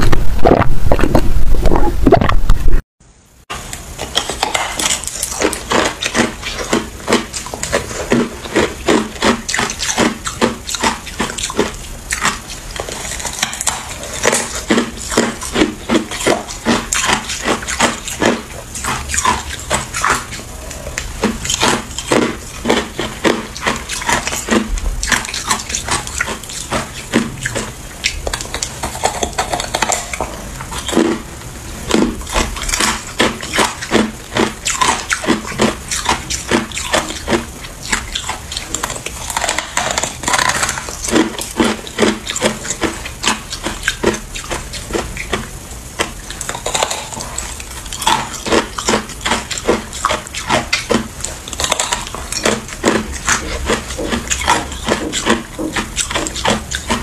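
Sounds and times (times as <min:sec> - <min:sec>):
person crunching ice: 0:46.0 - 0:47.2.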